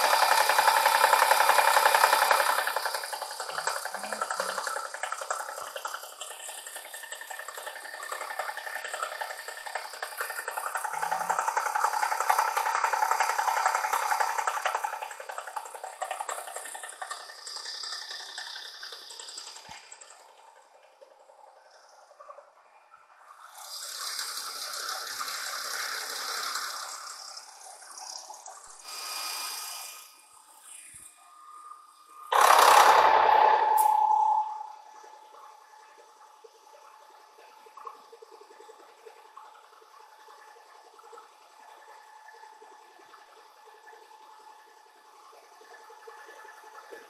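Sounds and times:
machine mechanism sounds: 0.0 - 29.2, 29.8 - 44.4
milling machine cutting steel: 32.3 - 35.0.

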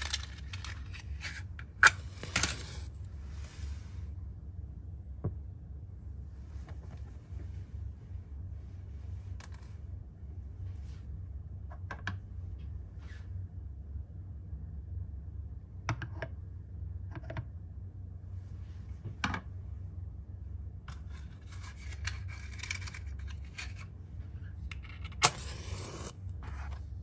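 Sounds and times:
rattling handling noise: 0.0 - 3.0
steady low hum: 0.0 - 27.0.

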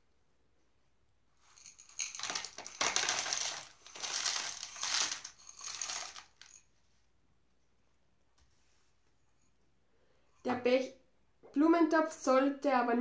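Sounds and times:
gravel pouring into pot: 2.0 - 6.4.

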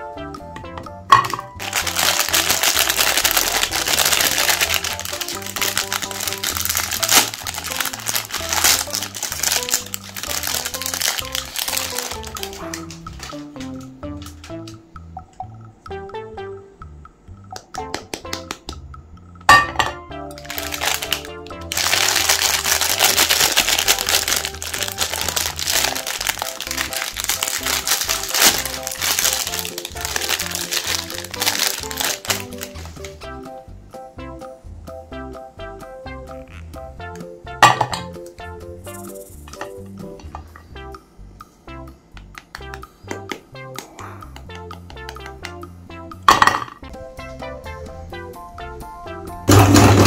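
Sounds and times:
background music: 0.0 - 50.0
plastic wrapper crinkling: 1.6 - 13.4, 20.4 - 33.2.

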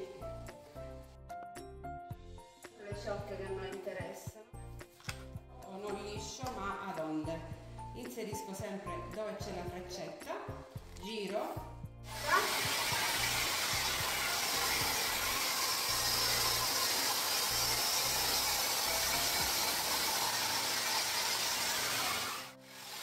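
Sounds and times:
hot air brush fan hissing: 12.0 - 23.0.

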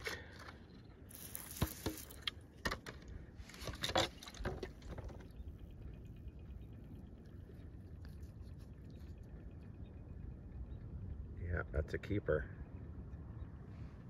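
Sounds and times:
rock clicking on gravel: 1.1 - 2.4.

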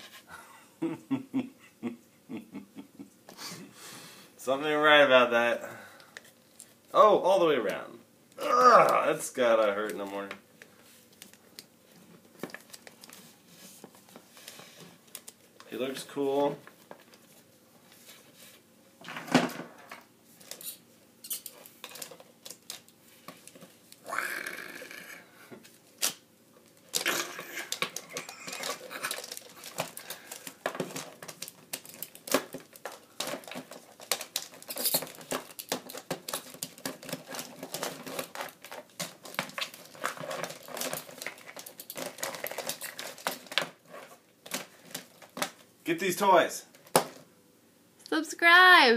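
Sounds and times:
plastic figures clattering: 21.5 - 23.7, 26.8 - 45.6
rough growl: 24.0 - 25.4.

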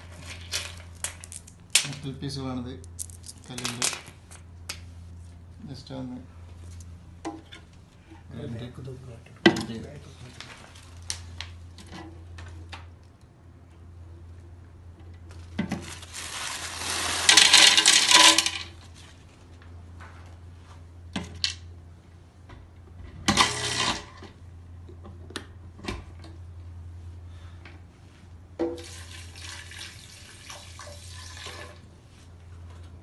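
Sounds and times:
stones clattering into plastic jar: 17.0 - 18.8.

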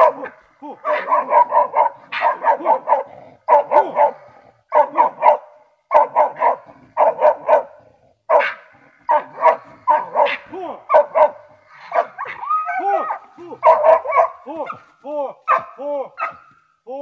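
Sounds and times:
dog barking sharply: 0.0 - 4.1, 4.7 - 7.7, 8.3 - 12.2, 13.6 - 14.8, 15.5 - 16.5.

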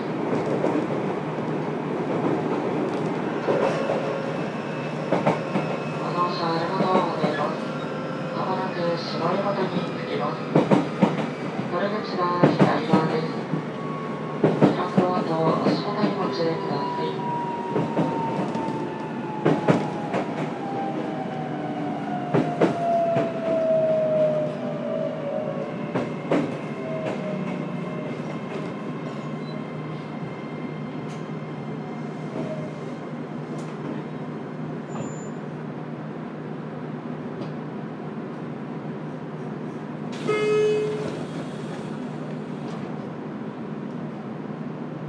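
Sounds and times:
train rumble: 0.0 - 30.0
train horn blast: 40.2 - 41.2.

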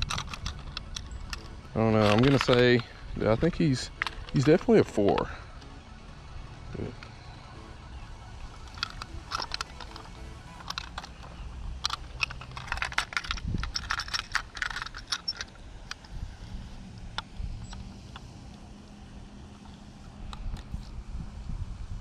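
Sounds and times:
plastic fish scale clicks and rattles: 0.0 - 5.3, 8.6 - 16.0.

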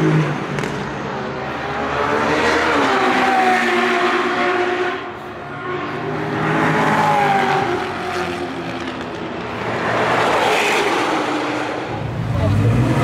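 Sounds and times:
supercar engines accelerating: 9.9 - 13.0.

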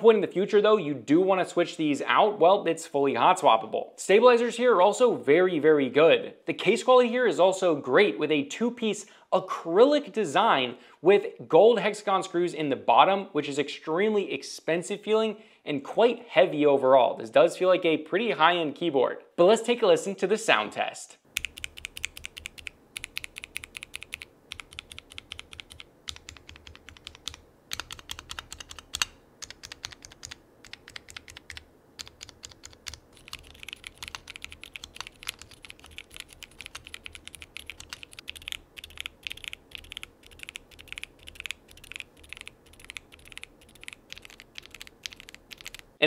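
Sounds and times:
mechanical keyboard keystroke clacks: 21.4 - 45.8.

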